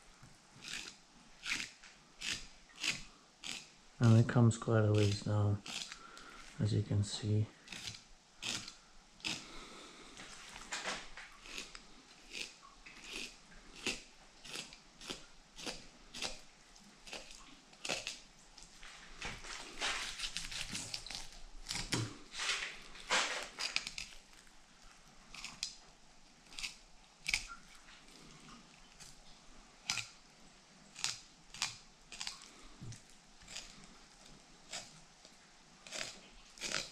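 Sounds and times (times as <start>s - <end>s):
knife cutting fish flesh: 0.6s - 3.7s, 5.0s - 6.2s, 7.7s - 9.5s, 19.9s - 22.2s, 23.1s - 24.3s, 29.8s - 30.2s, 35.9s - 36.9s.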